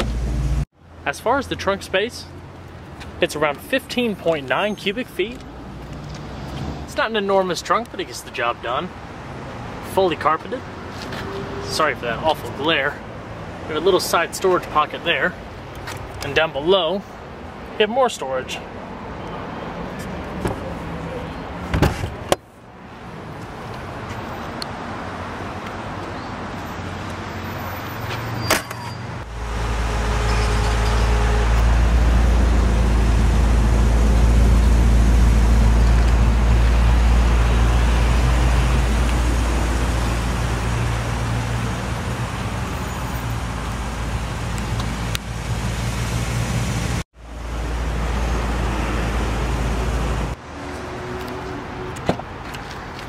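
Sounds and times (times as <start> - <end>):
vehicle engine low rumble: 29.2 - 53.0.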